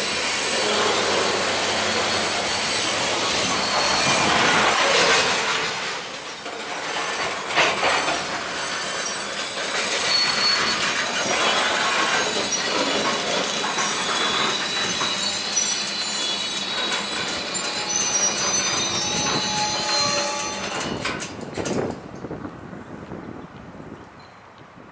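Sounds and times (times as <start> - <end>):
high wheel squeals: 0.0 - 21.9
railcar clanks: 0.0 - 22.6
train wheels rumbling: 0.0 - 22.6.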